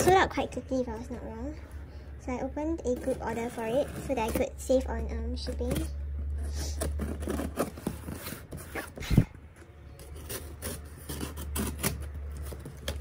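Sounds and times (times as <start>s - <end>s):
cardboard rubbing and scraping: 2.9s - 4.8s, 5.4s - 9.3s, 9.9s - 13.0s
box cutter slicing packing tape: 6.5s - 9.1s, 10.0s - 13.0s.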